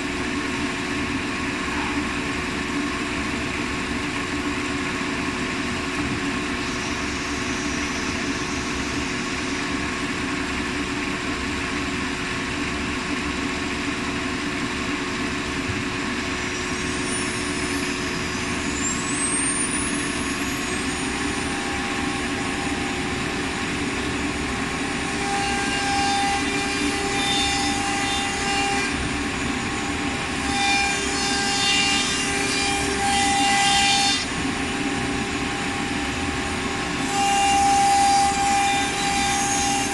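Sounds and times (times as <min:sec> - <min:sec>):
machine hum: 0:00.0 - 0:39.9
spindle whine: 0:00.0 - 0:39.9
router bit cutting wood: 0:21.1 - 0:39.9.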